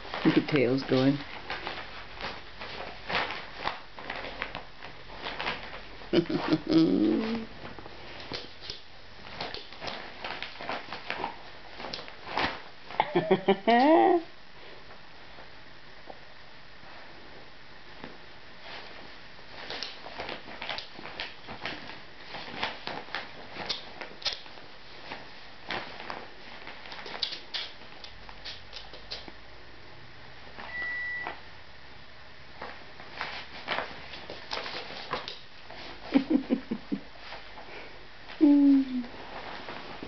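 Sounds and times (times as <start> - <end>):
short electronic beep: 30.7 - 31.4
tote bag rustling and scraping: 39.1 - 40.0.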